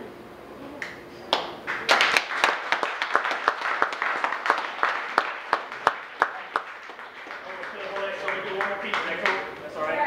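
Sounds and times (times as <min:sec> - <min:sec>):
audience applauding: 0:01.3 - 0:09.5.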